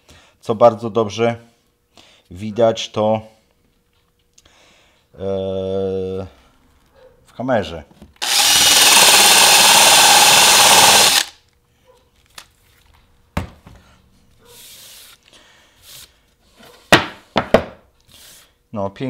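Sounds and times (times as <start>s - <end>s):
electric drill boring into wood: 8.2s - 11.4s.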